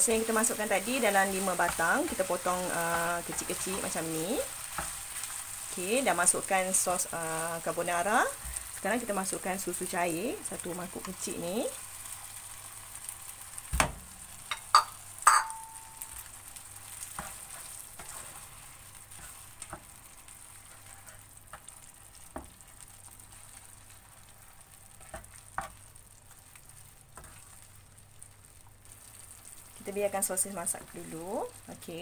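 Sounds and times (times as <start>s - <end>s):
sauce sizzling in a frying pan: 0.0s - 32.0s
bowl knocking against pan: 14.5s - 15.8s
spatula scraping a pan: 16.8s - 22.6s, 23.3s - 27.7s.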